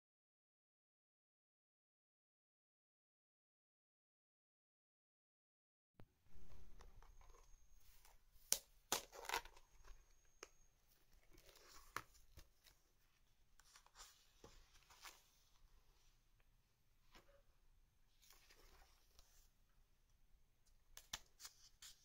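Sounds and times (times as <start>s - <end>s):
notebook pages turning: 6.3s - 15.7s, 18.2s - 19.5s.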